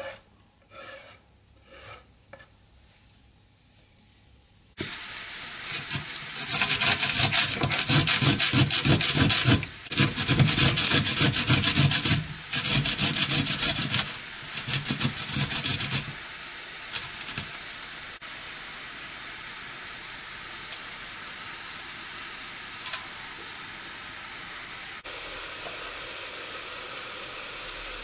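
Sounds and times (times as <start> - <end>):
faint steady hiss: 0.0 - 28.0
garlic rasping on a metal grater: 5.7 - 16.2.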